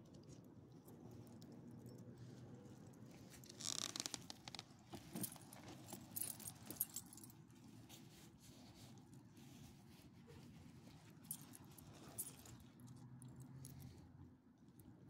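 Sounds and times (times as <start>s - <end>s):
faint handling rustle: 0.0s - 14.3s
metal leash clips jingling: 5.1s - 7.3s.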